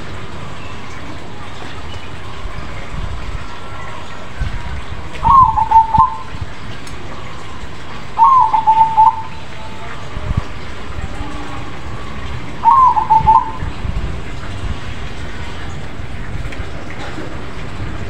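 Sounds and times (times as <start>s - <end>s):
dove cooing: 5.2s - 6.4s, 8.2s - 9.4s, 12.6s - 13.8s.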